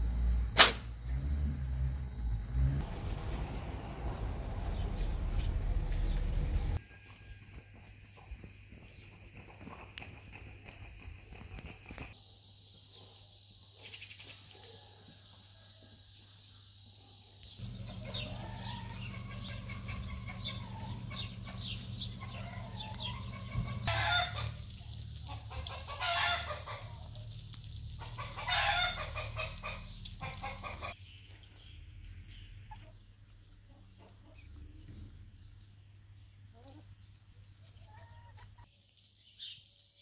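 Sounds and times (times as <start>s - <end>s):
chickens clucking and calling: 5.9s - 11.5s, 17.6s - 31.1s, 32.4s - 35.5s, 36.5s - 38.7s
lawn sprinkler spraying water: 17.6s - 31.0s, 38.7s - 40.0s.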